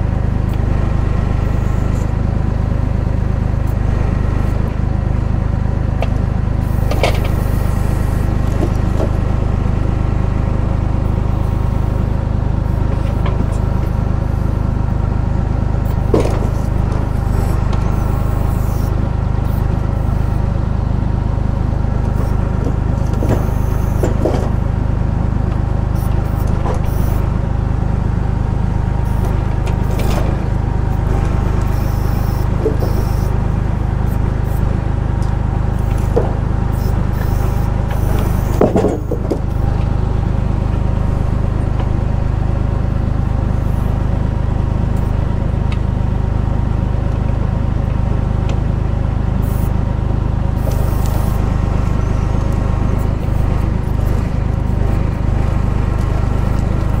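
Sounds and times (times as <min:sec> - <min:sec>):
tractor diesel engine running: 0:00.0 - 0:57.0
logs knocking: 0:38.1 - 0:39.5.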